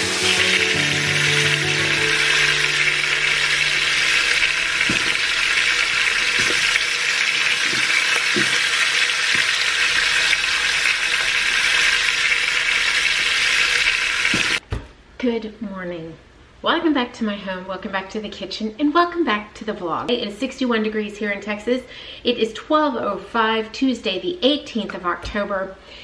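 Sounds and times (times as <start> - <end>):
background music: 0.0 - 7.2
food sizzling in a pan: 0.0 - 14.6.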